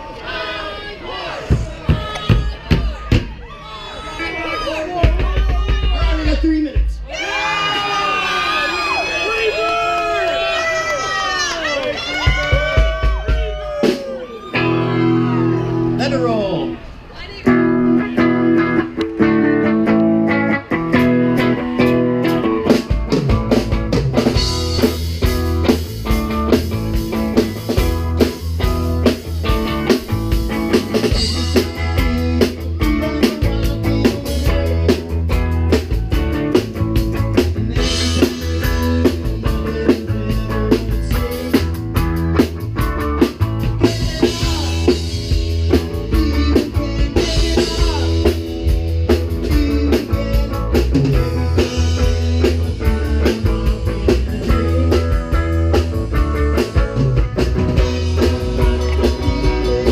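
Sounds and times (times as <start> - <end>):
drums beat: 1.4 - 3.4, 5.0 - 7.2, 12.2 - 14.8, 20.7 - 59.9
rock band playing: 1.4 - 7.6, 11.4 - 59.9
electric guitar: 11.6 - 59.9.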